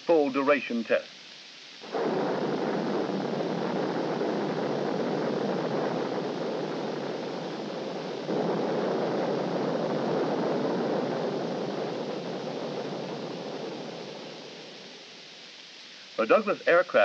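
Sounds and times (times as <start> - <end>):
rocket engines rushing rumble: 1.8 - 17.0.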